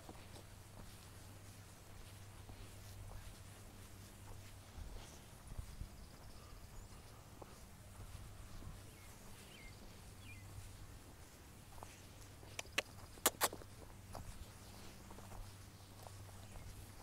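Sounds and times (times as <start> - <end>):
steady low hum: 0.0 - 17.0
faint bird chirps: 5.0 - 10.7.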